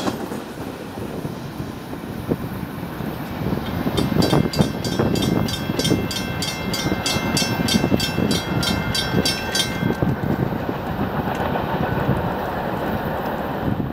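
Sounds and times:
railroad crossing bell ringing: 0:03.6 - 0:10.7.

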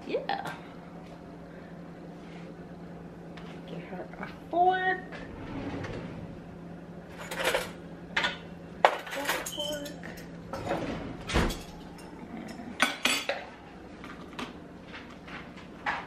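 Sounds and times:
low steady hum: 0:00.0 - 0:15.8
cutlery and dishes clinking: 0:07.2 - 0:10.8.

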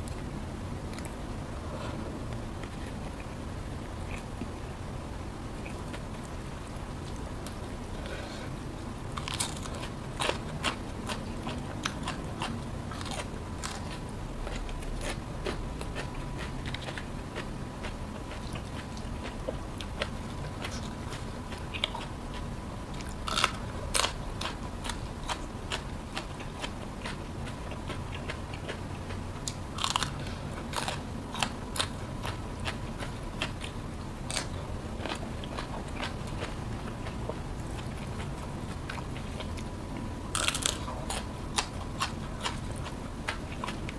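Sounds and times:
crunching raw vegetables: 0:09.1 - 0:39.7, 0:40.3 - 0:43.9.

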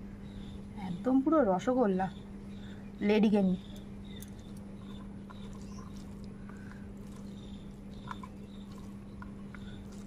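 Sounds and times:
steady low hum: 0:00.0 - 0:10.0
fingers mixing rice on plate: 0:04.1 - 0:10.0.

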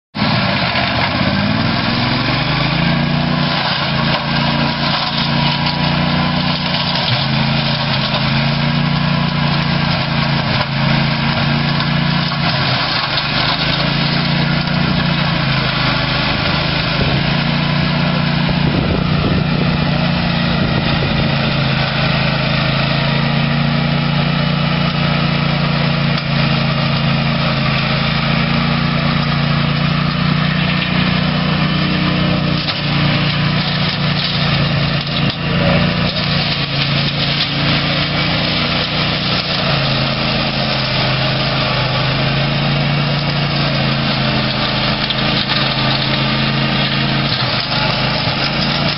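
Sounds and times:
tractor engine running: 0:00.1 - 0:48.9.

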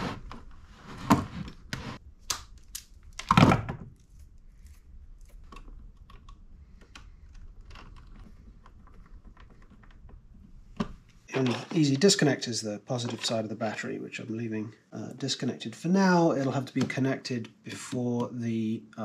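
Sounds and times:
wires and connectors handled: 0:01.1 - 0:11.8.

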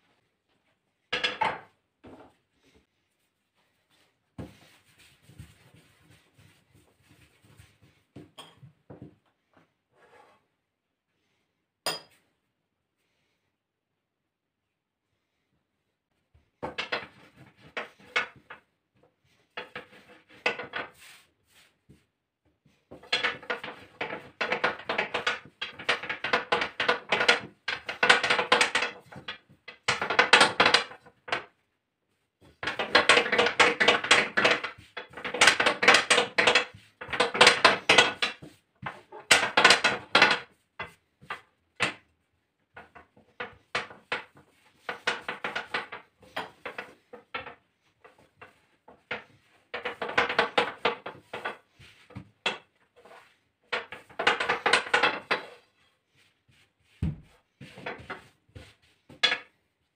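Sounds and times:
rolling pin clattering on counter: 0:01.1 - 0:02.3, 0:16.6 - 0:18.7, 0:19.5 - 0:21.6, 0:22.9 - 0:31.6, 0:32.4 - 0:59.6.

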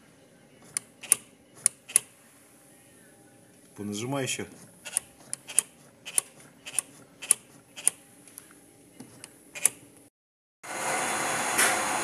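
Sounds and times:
throttle linkage clicking: 0:00.7 - 0:02.1, 0:04.9 - 0:08.0.

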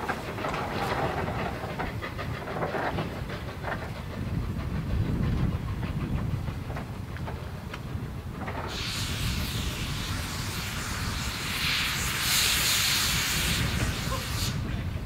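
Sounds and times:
wheels clanking: 0:00.0 - 0:08.9
steam locomotive rumbling: 0:00.0 - 0:15.0.

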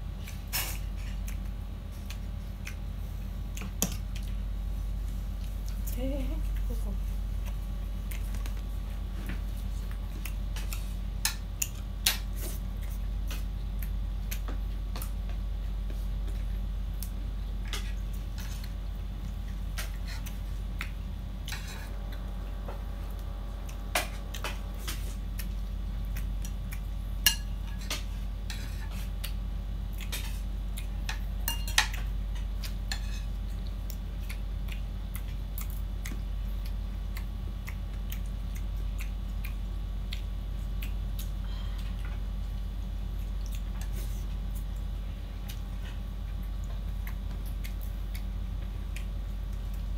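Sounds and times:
steady low hum: 0:00.0 - 0:49.9
spoons clinking on plates: 0:31.5 - 0:32.0.

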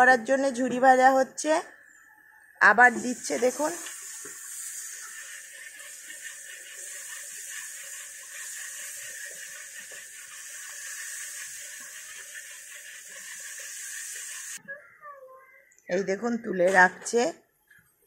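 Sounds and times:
batter sizzling in hot oil: 0:02.8 - 0:14.6.

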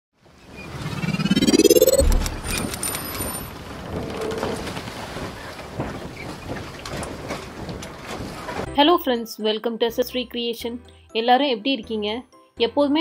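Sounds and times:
rising sweep: 0:00.6 - 0:03.0
crackling noise rush: 0:00.6 - 0:03.2
deep boom: 0:01.3 - 0:02.7.

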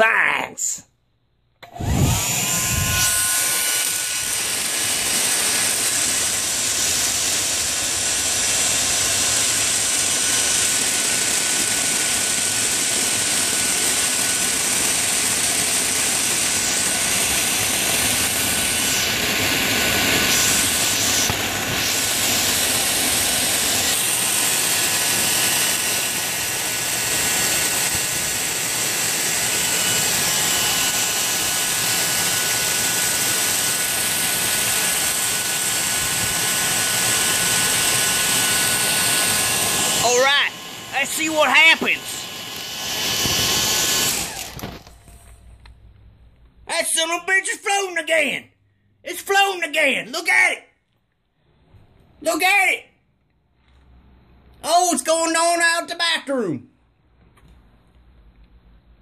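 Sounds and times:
hair dryer running: 0:01.6 - 0:45.4.

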